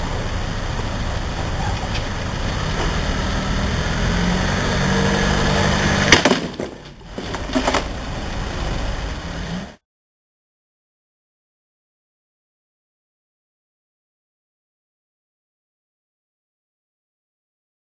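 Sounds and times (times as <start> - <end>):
van engine running: 0.0 - 9.8
loud bang of wheel dropping: 5.9 - 8.0.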